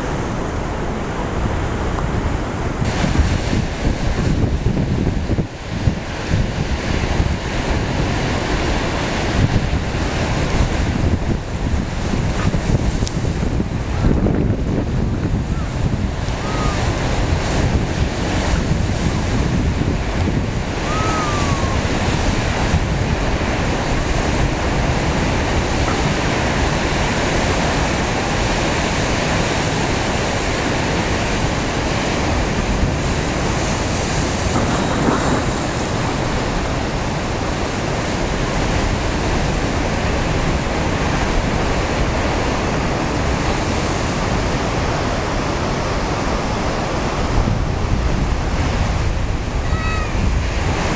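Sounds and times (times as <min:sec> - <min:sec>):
surf breaking on shore: 0:00.0 - 0:50.9
wind buffeting microphone: 0:00.0 - 0:50.9.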